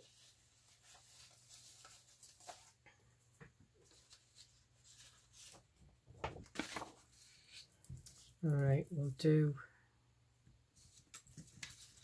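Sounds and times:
paper rustling and tapping: 0:00.8 - 0:08.3, 0:10.9 - 0:12.0.

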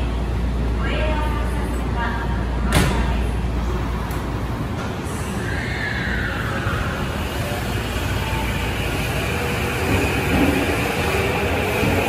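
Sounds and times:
train rumbling: 0:00.0 - 0:12.0.

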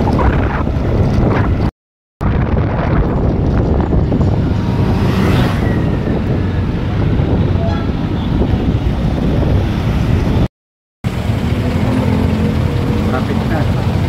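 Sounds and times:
wind buffeting microphone: 0:00.0 - 0:10.5
road noise: 0:00.0 - 0:14.0
scooter engine: 0:11.1 - 0:14.0.

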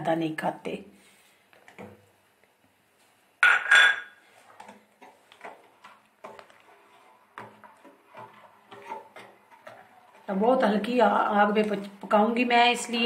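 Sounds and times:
metal spoon clanging on pot: 0:03.4 - 0:04.2
spoon scraping pot while stirring: 0:03.4 - 0:12.1.

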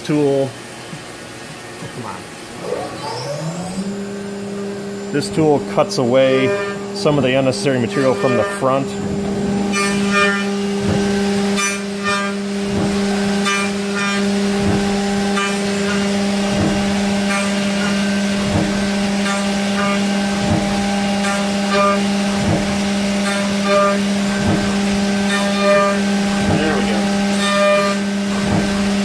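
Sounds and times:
spindle hum: 0:01.8 - 0:29.0
milling machine cutting aluminium: 0:02.6 - 0:29.0.

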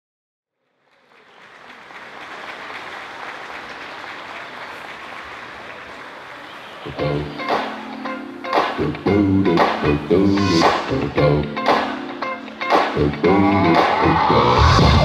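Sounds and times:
audience applause: 0:00.6 - 0:08.8.

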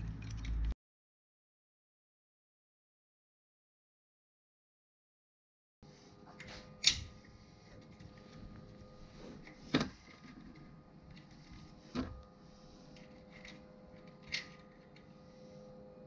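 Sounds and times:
faint steady hum: 0:05.8 - 0:16.0.

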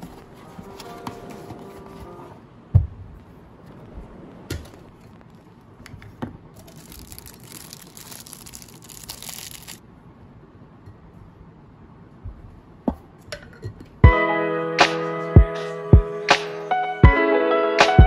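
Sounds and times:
plastic packaging crinkling: 0:06.6 - 0:09.8.

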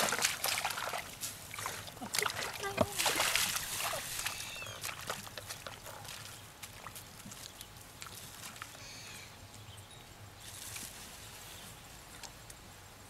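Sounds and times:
mud and water squelching: 0:00.0 - 0:09.7.

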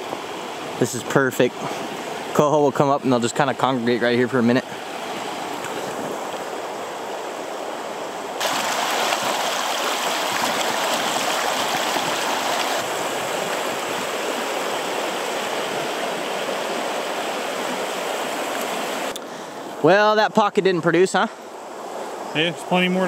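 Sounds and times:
river water rushing over rocks: 0:04.4 - 0:19.9.

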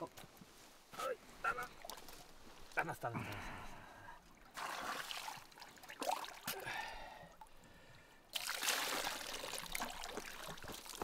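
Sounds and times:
water splashing onto rocks: 0:04.5 - 0:06.6, 0:08.3 - 0:11.0.

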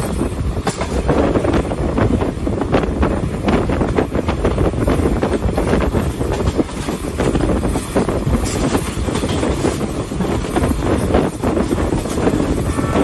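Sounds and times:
train wheels rumbling on track: 0:00.0 - 0:13.0
wind on microphone: 0:00.0 - 0:13.0.

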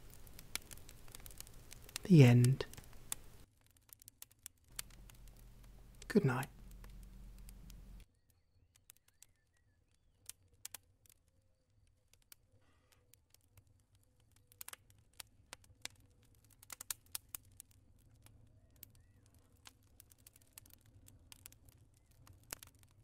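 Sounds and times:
fire crackling and popping: 0:00.0 - 0:23.0
low steady rumble: 0:04.7 - 0:08.0.

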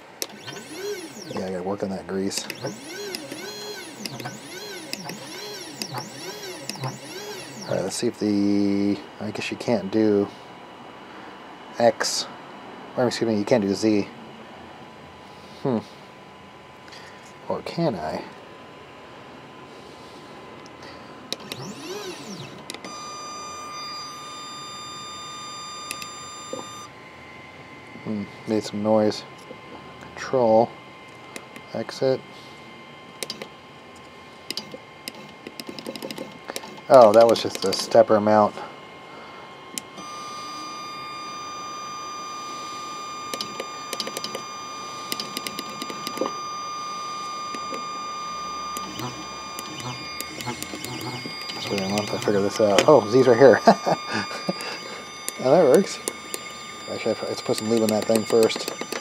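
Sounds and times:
stepper motor clicks: 0:00.0 - 0:08.1, 0:20.6 - 0:26.9, 0:33.2 - 0:38.1, 0:39.7 - 0:40.7, 0:43.2 - 0:59.0
stepper motor whine: 0:00.0 - 0:12.2, 0:20.7 - 0:59.0
small clicks: 0:25.8 - 0:26.7, 0:33.2 - 0:33.5, 0:34.5 - 0:37.9, 0:43.3 - 0:44.4, 0:45.1 - 0:46.3, 0:48.7 - 0:52.9, 0:54.5 - 0:59.0.

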